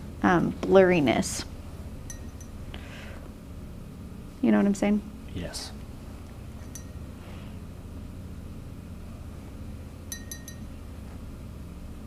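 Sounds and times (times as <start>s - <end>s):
low room hum: 0.0s - 12.0s
paintbrush clinking on glass jar: 2.1s - 2.5s, 6.6s - 7.0s, 10.1s - 10.7s.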